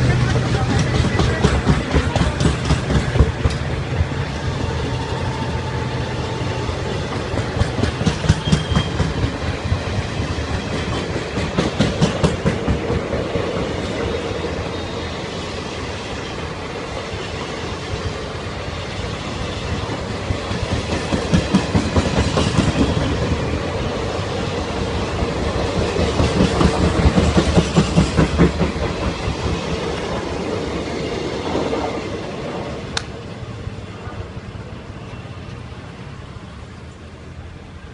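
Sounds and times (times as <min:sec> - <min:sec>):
train coaches rumbling past: 0:00.0 - 0:37.9
wheels clattering over rail joints: 0:24.9 - 0:30.7.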